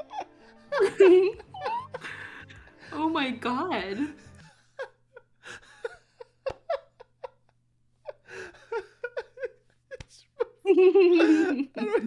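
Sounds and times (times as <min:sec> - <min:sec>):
man laughing uncontrollably: 0:00.0 - 0:02.5, 0:04.4 - 0:07.5, 0:08.1 - 0:12.0.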